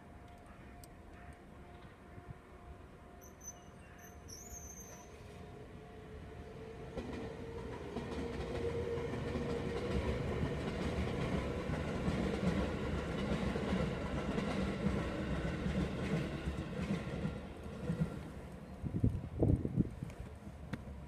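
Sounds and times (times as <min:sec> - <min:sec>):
train wheels rumbling on rails: 0:06.6 - 0:21.0.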